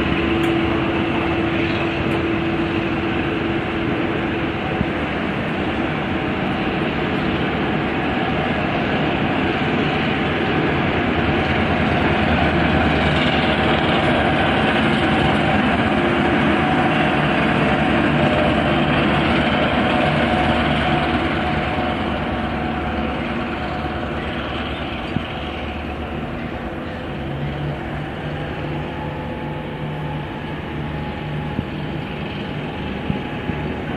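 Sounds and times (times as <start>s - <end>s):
diesel locomotive engine: 0.0s - 33.9s
train carriages rolling on rails: 0.0s - 33.9s.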